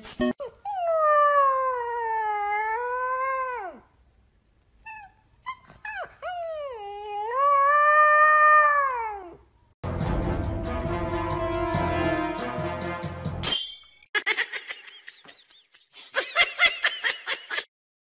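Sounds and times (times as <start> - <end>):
puppy yipping: 4.8 - 7.2
puppy howling: 4.9 - 9.4.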